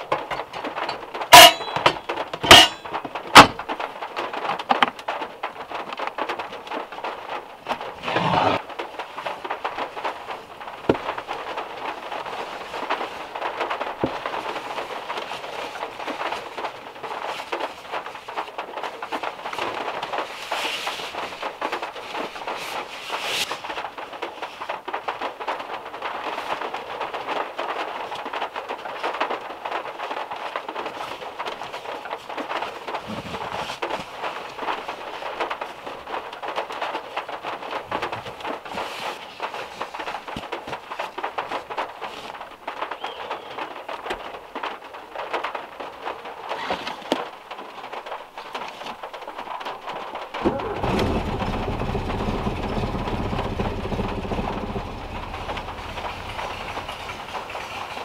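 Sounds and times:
rain on metal car roof: 0.0 - 58.0
sleeping bag rustling: 7.7 - 8.7, 30.8 - 43.6.

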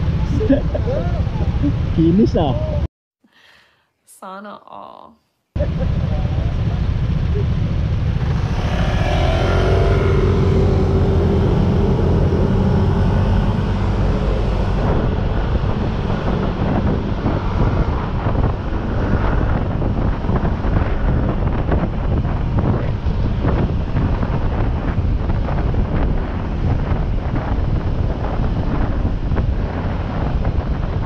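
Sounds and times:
wind rumbling on microphone: 0.0 - 2.9, 5.6 - 31.0
motorcycle engine: 5.6 - 30.2.

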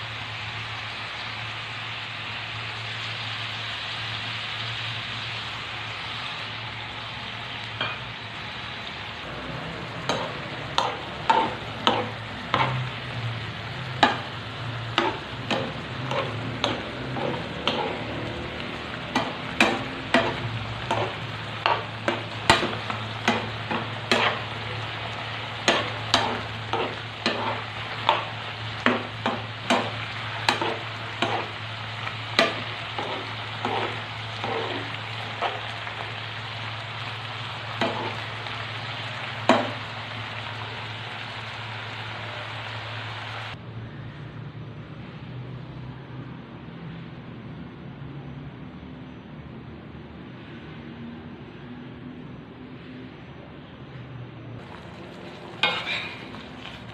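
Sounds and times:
food sizzling in a pan: 0.0 - 43.6, 54.6 - 56.9
utensil scraping and knocking pan: 14.9 - 18.2, 19.1 - 24.5, 25.6 - 35.7, 55.6 - 56.4.

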